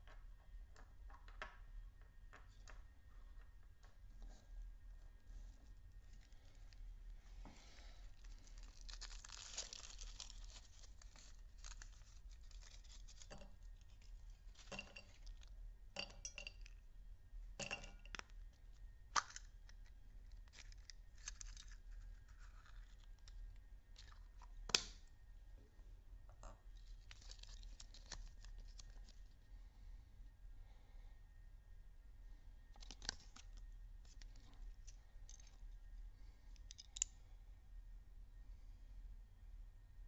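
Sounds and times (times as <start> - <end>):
foil wrapper crinkling and tearing: 8.1 - 15.4, 19.2 - 24.2, 26.8 - 29.3
plastic capsule clicks and snaps: 19.1 - 19.9.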